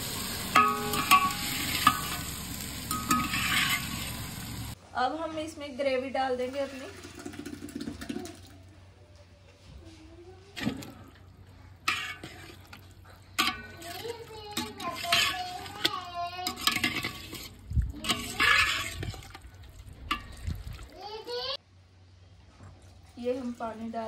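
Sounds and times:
wet slopping and scraping: 0:10.5 - 0:21.0.

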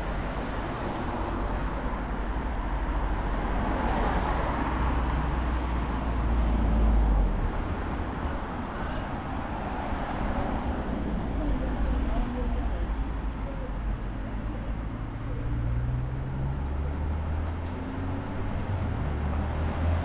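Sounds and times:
vehicle passing with tyre noise: 0:15.5 - 0:20.0.

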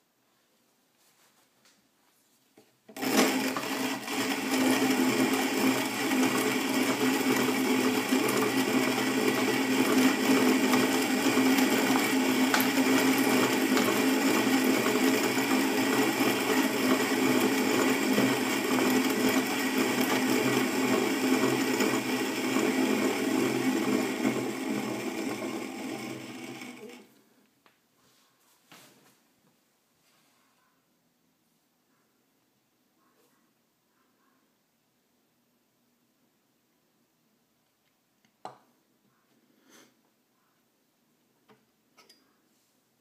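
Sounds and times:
coffee grinder grinding beans: 0:02.9 - 0:27.1.

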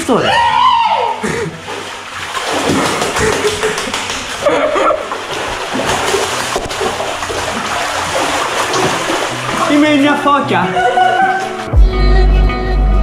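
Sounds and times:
sea water splashing in a cave: 0:01.1 - 0:10.5.

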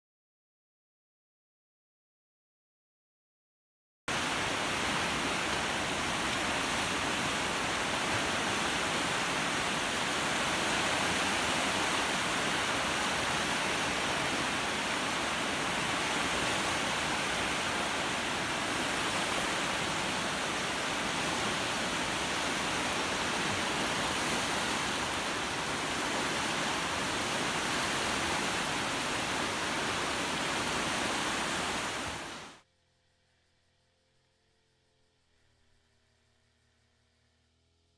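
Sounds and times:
fast-flowing river water: 0:04.1 - 0:32.6.

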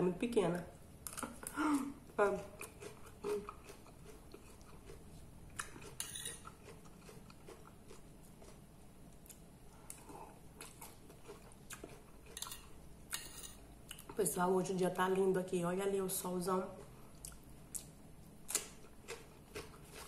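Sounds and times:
person chewing lettuce: 0:02.5 - 0:12.7, 0:16.8 - 0:20.0.

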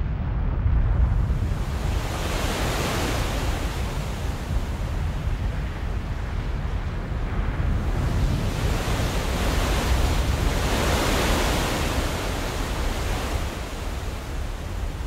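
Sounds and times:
roar of churning sea water: 0:01.3 - 0:15.0.

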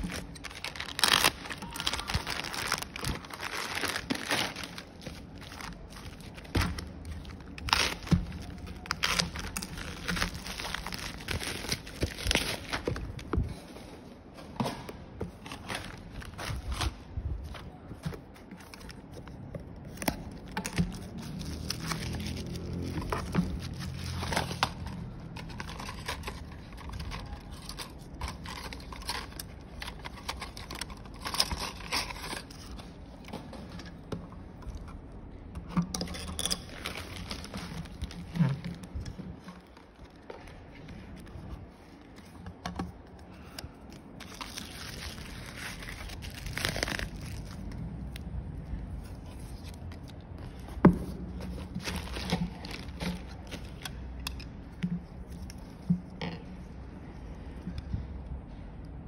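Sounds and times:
packaging scraping and clicking: 0:00.0 - 0:13.8, 0:15.2 - 0:47.8
plastic and paper crinkling: 0:00.0 - 0:14.5, 0:15.2 - 0:35.8, 0:36.4 - 0:56.2.

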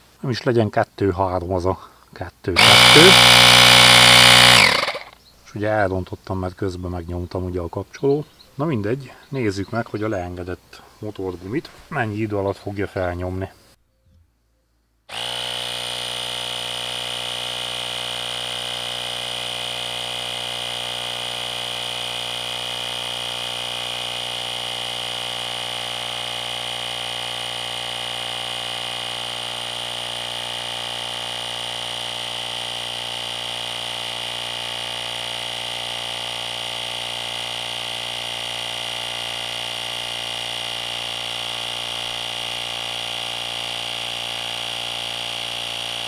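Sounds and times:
air compressor buzzing drone: 0:02.6 - 0:05.2, 0:15.1 - 0:46.0.

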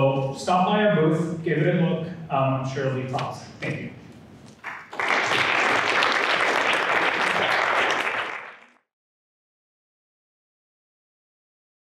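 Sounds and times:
audience applauding: 0:04.6 - 0:08.8.

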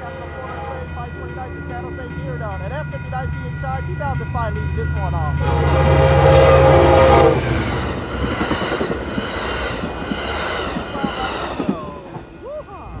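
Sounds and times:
train horn: 0:00.0 - 0:11.8
crossing bell ringing: 0:00.0 - 0:12.4
train cars rumbling past: 0:00.0 - 0:13.0
train wheels clicking over rail joints: 0:07.4 - 0:12.6.

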